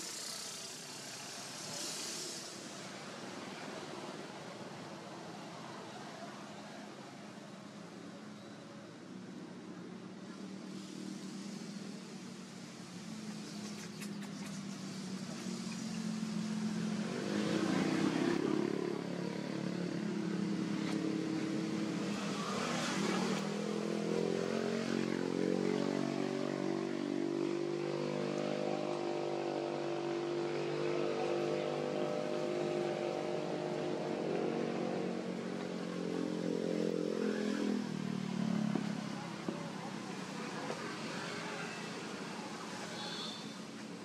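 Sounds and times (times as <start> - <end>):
vehicle engine running: 9.6 - 44.0.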